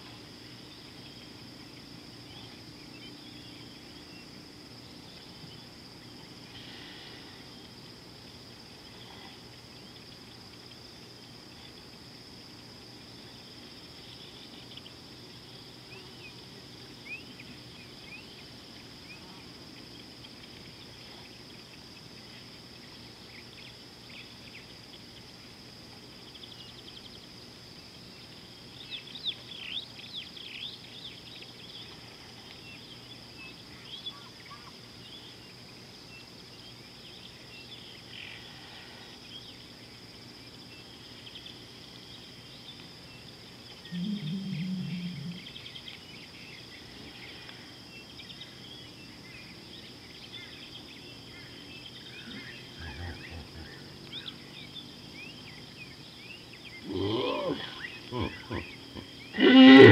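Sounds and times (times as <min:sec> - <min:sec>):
high insect drone: 0:00.0 - 0:59.9
birds chirping: 0:42.1 - 0:59.9.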